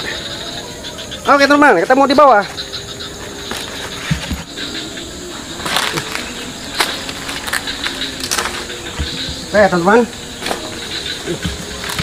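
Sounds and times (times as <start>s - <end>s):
high insect drone: 0.0s - 12.0s
knocks and scrapes against trunk: 3.5s - 4.5s.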